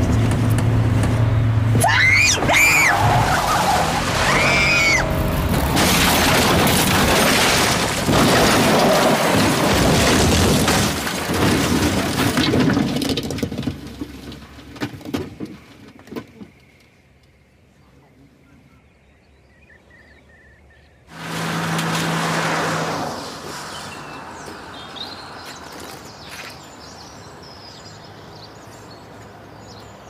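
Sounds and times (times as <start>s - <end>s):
short high shrieks: 1.8s - 5.3s
car crashing and crunching metal: 1.9s - 15.8s
glass breaking: 4.0s - 12.8s.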